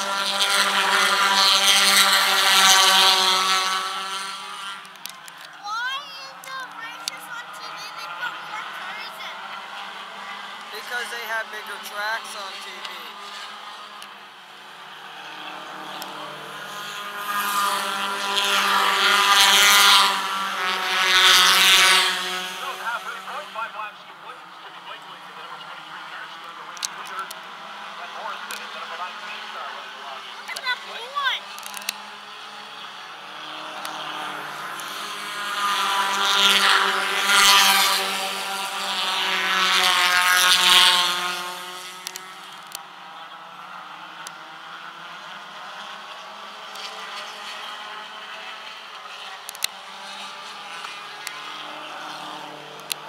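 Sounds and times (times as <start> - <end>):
race cars passing at high revs: 0.0 - 53.0.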